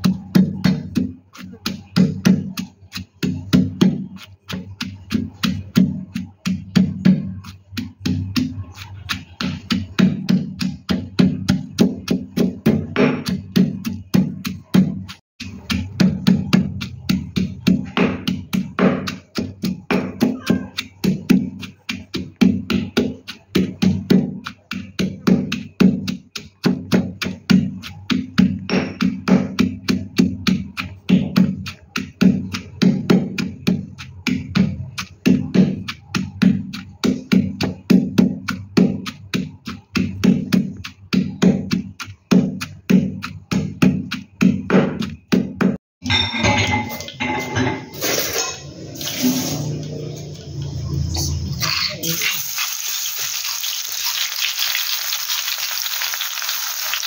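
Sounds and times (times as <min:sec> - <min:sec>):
pestle pounding in stone mortar: 0:00.0 - 0:57.0
hot oil sizzling in wok: 0:49.0 - 0:49.7, 0:52.0 - 0:57.0.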